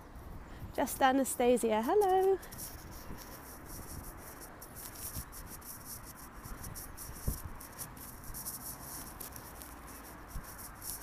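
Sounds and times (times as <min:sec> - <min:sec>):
phone rustling and scraping: 0:01.9 - 0:11.0.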